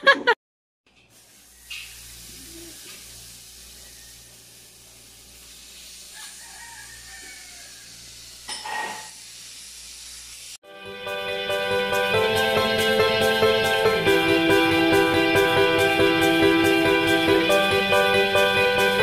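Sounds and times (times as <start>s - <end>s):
chicken sizzling in a frying pan: 0.9s - 10.6s.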